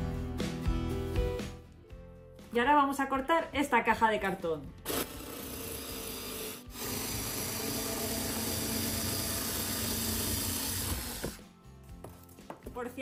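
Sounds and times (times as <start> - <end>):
cordless screwdriver cutting cardboard: 4.9 - 11.4.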